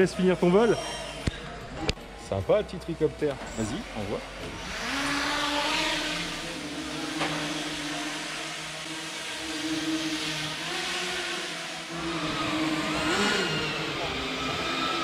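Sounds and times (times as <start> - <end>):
drone motors whining: 3.2 - 15.0.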